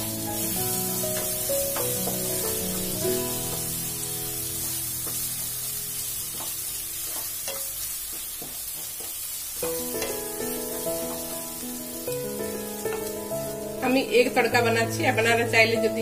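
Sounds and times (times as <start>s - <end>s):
background music: 0.0s - 7.1s, 9.7s - 16.0s
oil sizzling: 0.0s - 16.0s
spatula scraping a wok: 6.2s - 11.2s.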